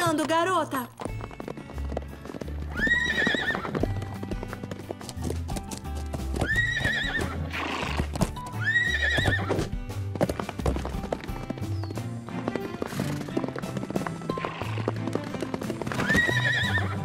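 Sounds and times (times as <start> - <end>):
background music: 0.0 - 17.0
hooves clip-clopping: 0.0 - 17.0
cartoon horse whinnies: 2.7 - 3.9, 6.4 - 9.7, 15.9 - 17.0.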